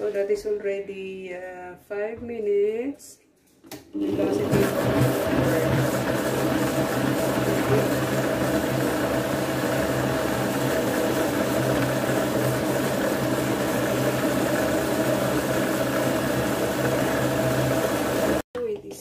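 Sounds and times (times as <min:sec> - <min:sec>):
kitchen robot motor humming: 0:04.1 - 0:18.4.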